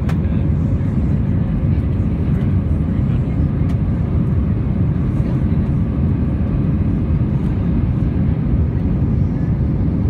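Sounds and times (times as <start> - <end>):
airplane cabin engine rumble: 0.0 - 10.0.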